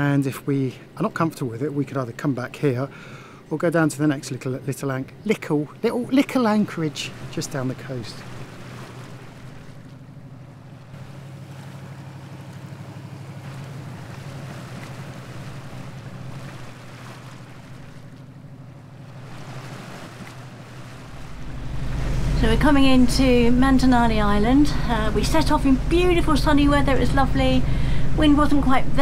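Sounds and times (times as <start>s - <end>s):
low engine drone: 0.0s - 29.0s
water rushing along hull: 0.0s - 29.0s
wind buffeting microphone: 12.6s - 29.0s.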